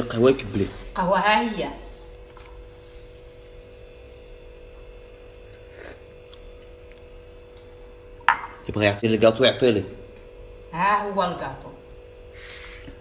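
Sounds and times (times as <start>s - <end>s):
low electrical hum: 0.0s - 13.0s.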